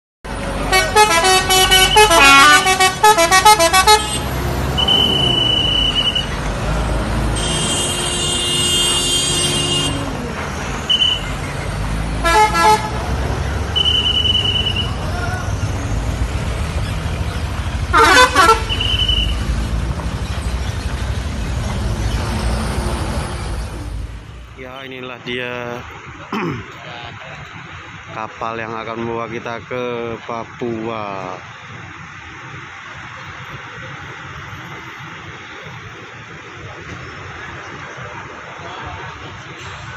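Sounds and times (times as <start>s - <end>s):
bus engine running: 0.2s - 39.9s
musical bus horn: 0.6s - 6.3s, 7.1s - 10.2s, 12.2s - 15.1s, 17.8s - 19.6s
high whistle blasts: 4.8s - 6.3s, 10.9s - 11.2s, 13.8s - 15.0s, 18.7s - 19.4s.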